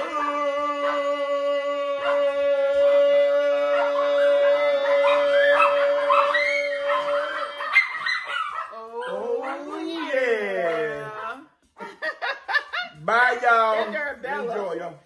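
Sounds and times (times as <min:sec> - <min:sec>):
man singing long note: 0:00.0 - 0:07.0
dog howling and yipping: 0:01.9 - 0:02.8, 0:03.4 - 0:11.1.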